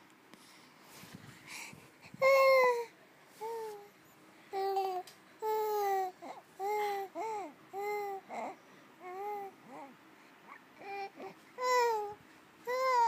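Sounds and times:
baby babbling: 4.6s - 10.0s, 10.8s - 13.0s.

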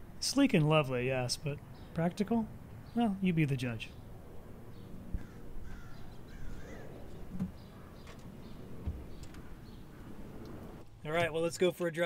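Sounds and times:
bird calling: 4.7s - 10.8s.

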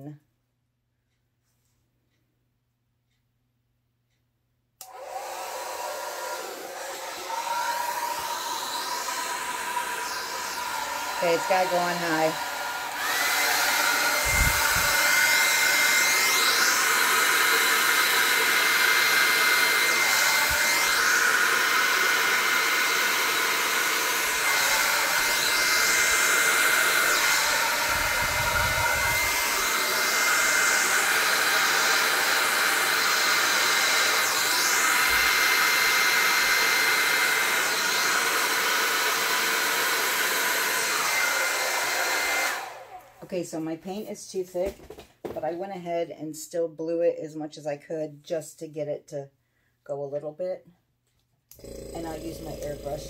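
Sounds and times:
hair dryer whooshing with high whine: 4.8s - 45.4s, 51.5s - 53.0s.

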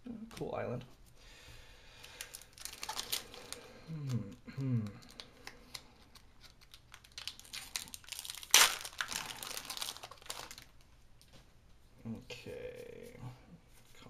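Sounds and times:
foil wrapper crinkling: 2.0s - 3.7s, 5.0s - 10.8s.

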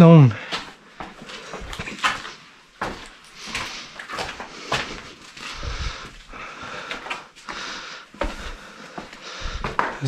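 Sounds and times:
footsteps crunching over boards: 0.4s - 10.0s
wood knocking underfoot: 8.2s - 10.0s.

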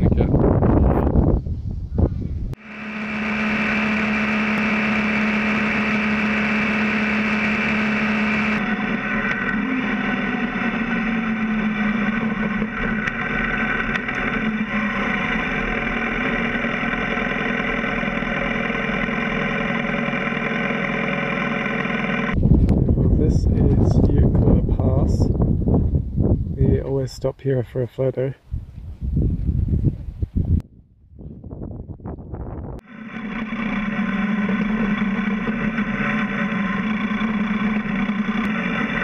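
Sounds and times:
motorcycle engine running: 2.6s - 25.8s, 32.8s - 39.0s.

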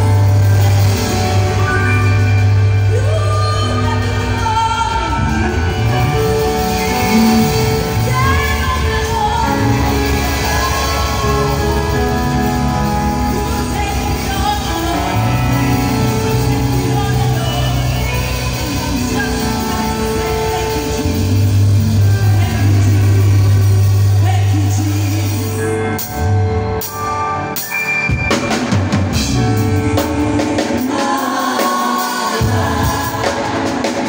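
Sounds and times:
electric bass guitar: 0.0s - 30.8s
church worship music: 0.0s - 34.0s
group singing: 5.2s - 13.1s, 30.0s - 34.0s.

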